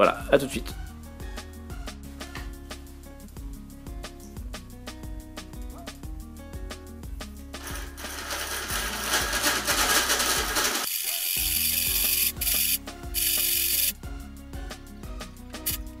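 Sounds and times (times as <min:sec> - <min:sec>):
background music with a beat: 0:00.3 - 0:16.0
fishing reel whirring: 0:07.6 - 0:14.0.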